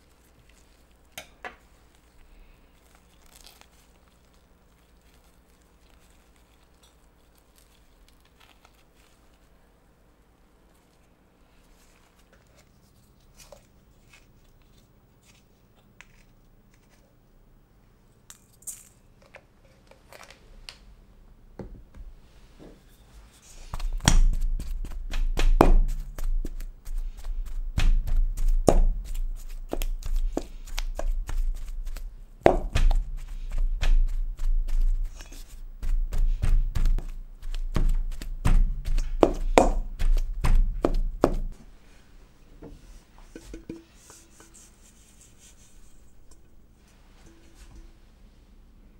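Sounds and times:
hands peeling food: 0.0 - 9.6, 23.5 - 41.6
wooden pestle pounding in metal bowl: 23.7 - 41.6.

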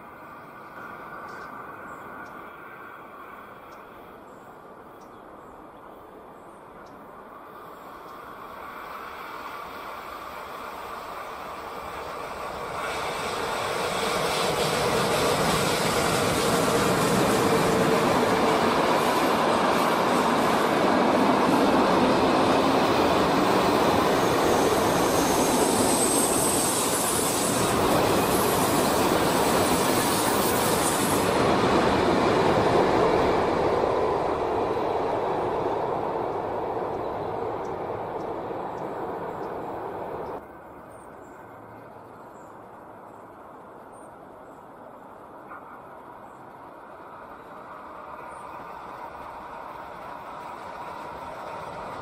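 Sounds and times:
freight train passing: 0.0 - 52.0
high wheel squeal: 23.9 - 31.3.

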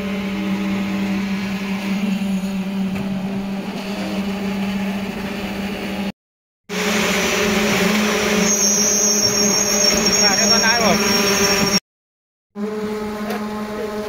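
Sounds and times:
construction noise: 0.0 - 6.1, 6.7 - 11.8, 12.6 - 14.0
concrete vibrator motor hum: 12.6 - 14.0.

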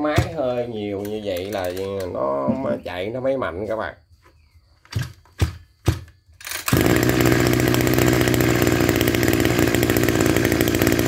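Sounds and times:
recoil starter cord pulls: 6.4 - 11.0
brush cutter engine running: 6.5 - 11.0.

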